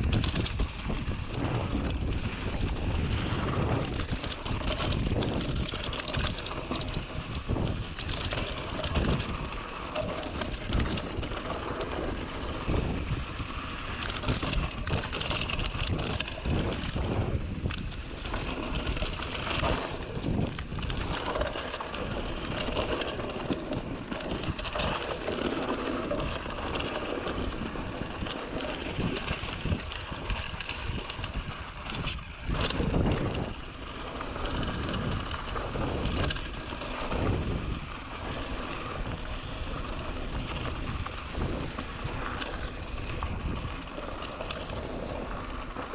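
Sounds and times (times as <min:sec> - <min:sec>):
bike rattling and knocking: 0:00.0 - 0:45.9
bike tyres rumbling on dirt: 0:00.0 - 0:45.9
wind on microphone: 0:00.0 - 0:45.9.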